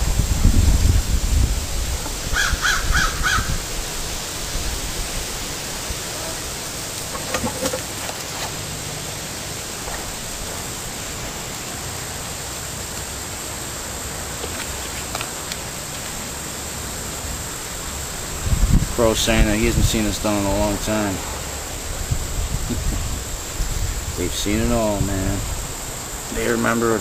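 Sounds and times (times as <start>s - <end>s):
wind rumble on microphone: 0.0s - 6.1s, 18.1s - 20.9s, 21.8s - 26.2s
steady outdoor hiss: 0.0s - 27.0s
crow cawing: 2.3s - 3.6s.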